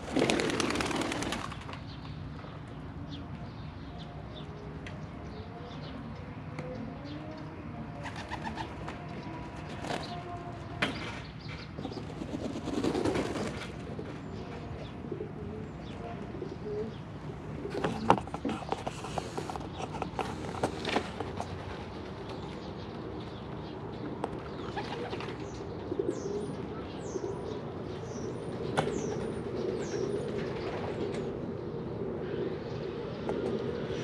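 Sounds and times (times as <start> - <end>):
pigeons cooing: 0.0 - 1.7, 7.9 - 10.6, 11.8 - 34.0
wings rustling flurry: 0.0 - 1.8.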